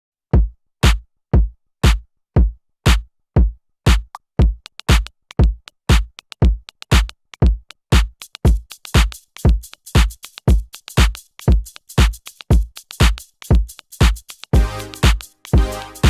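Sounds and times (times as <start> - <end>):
electronic kick drum: 0.4 - 16.0
crisp hi-hat ticks: 4.1 - 16.0.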